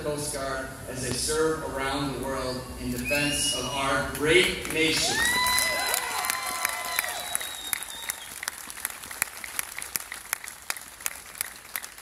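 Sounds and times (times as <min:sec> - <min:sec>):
people cheering: 0:03.1 - 0:10.2
audience applauding: 0:04.2 - 0:12.0.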